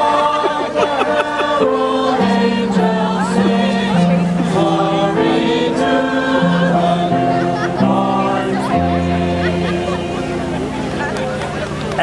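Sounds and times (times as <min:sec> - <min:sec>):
choir singing: 0:00.0 - 0:11.4.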